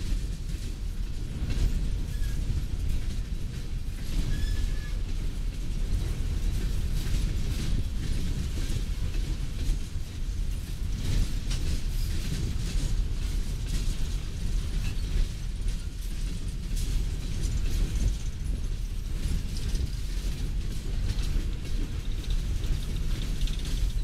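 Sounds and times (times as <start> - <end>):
train wheels rumbling on rail: 0.0 - 24.0
faint wheel squeal: 4.2 - 5.1.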